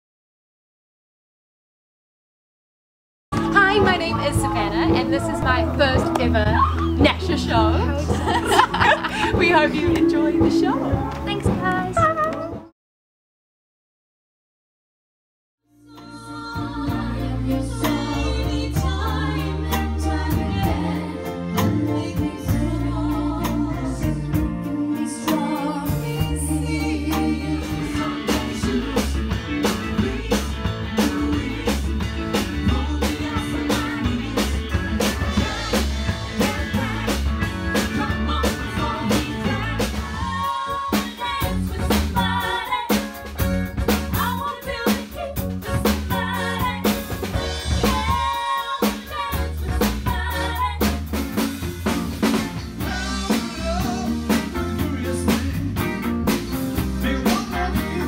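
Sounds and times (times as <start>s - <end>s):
drum kit beat: 3.3s - 12.7s, 16.6s - 58.0s
electric bass: 3.3s - 12.7s, 15.8s - 58.0s
woman singing: 3.4s - 12.6s, 15.9s - 29.1s, 36.4s - 43.1s, 44.2s - 51.0s
man singing: 52.8s - 58.0s.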